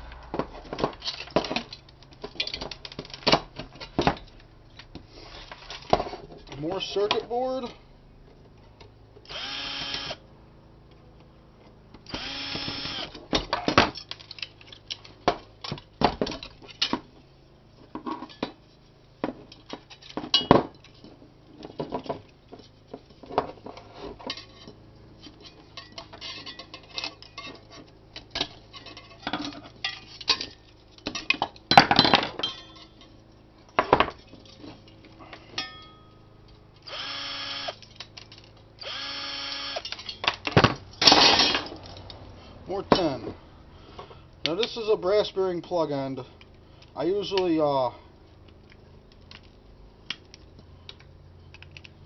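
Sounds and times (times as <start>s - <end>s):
cordless drill whirring: 9.3s - 10.2s, 12.1s - 13.2s, 36.8s - 37.8s, 38.8s - 39.8s.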